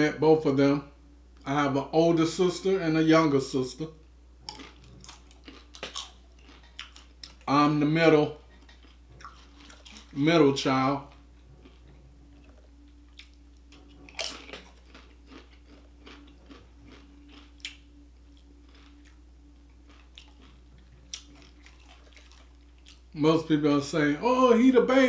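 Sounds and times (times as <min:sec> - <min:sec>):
faint steady hum: 0:00.0 - 0:25.0
tortilla chip crunching: 0:04.5 - 0:07.6, 0:08.3 - 0:23.2.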